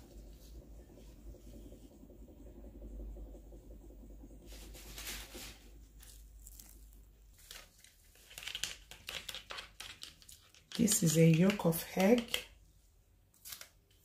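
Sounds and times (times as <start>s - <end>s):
low hum: 0.0s - 7.4s.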